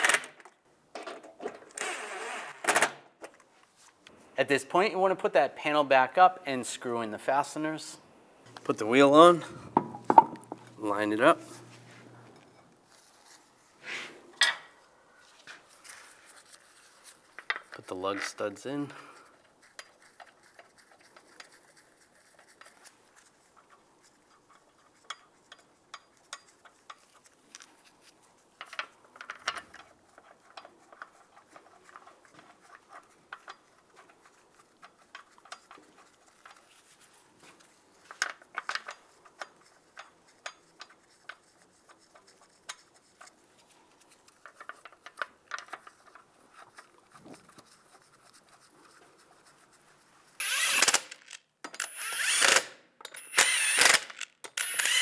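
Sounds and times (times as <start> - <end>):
lug bolts clicking and rattling: 28.6 - 31.1.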